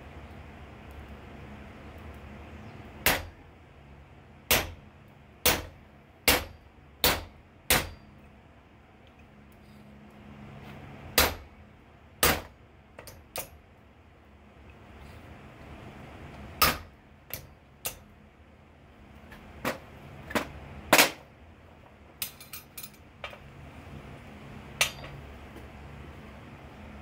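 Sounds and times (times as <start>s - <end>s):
hammer striking metal: 4.5s - 4.8s, 5.4s - 5.7s, 6.3s - 8.1s, 11.2s - 11.4s, 12.2s - 12.5s, 16.6s - 18.0s, 24.8s - 25.2s
tools clinking on anvil: 22.2s - 23.0s, 24.8s - 25.2s
forge air blower humming: 23.1s - 27.0s.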